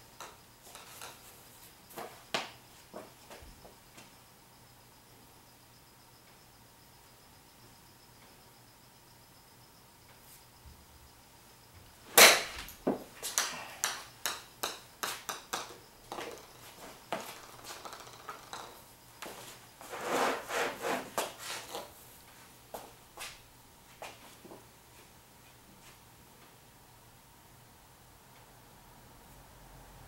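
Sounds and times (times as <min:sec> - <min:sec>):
golf club striking ball: 0:12.1 - 0:13.0
ball bouncing on hard floor: 0:12.2 - 0:18.9.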